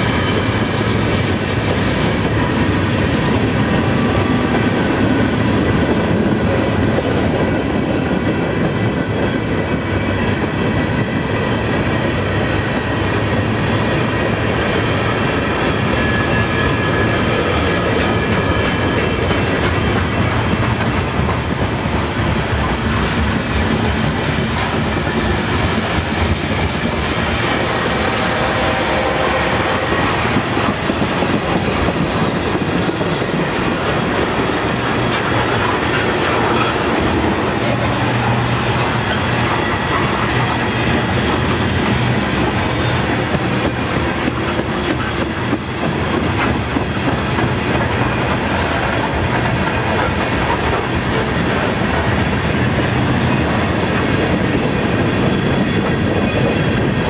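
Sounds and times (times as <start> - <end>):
train wheels rumbling on rails: 0.0 - 57.0
wheels clicking over rail joints: 17.6 - 27.1.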